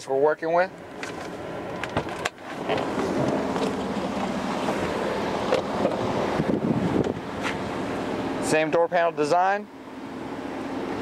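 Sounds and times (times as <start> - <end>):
wind buffeting microphone: 3.0 - 7.8.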